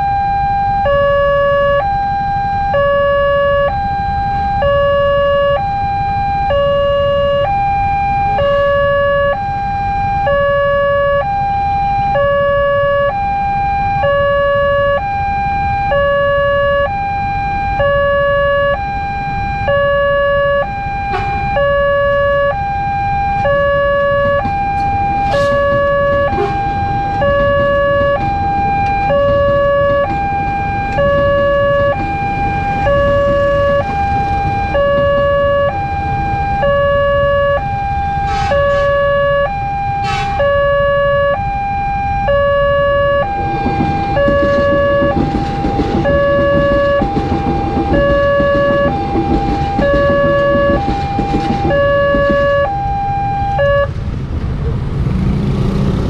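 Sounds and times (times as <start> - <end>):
two-tone crossing alarm: 0.0 - 54.0
motorcycle engines idling: 23.4 - 37.3, 42.3 - 52.9.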